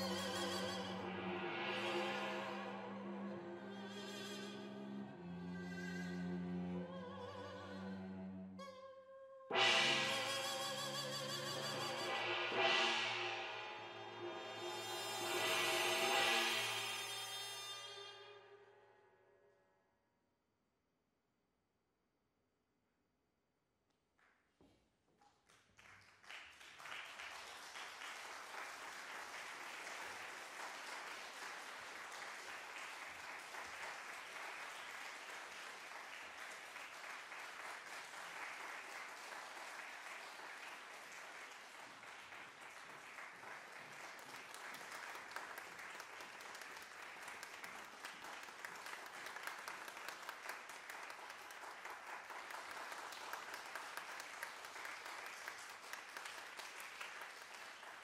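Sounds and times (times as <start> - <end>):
audience applause: 25.8 - 58.0.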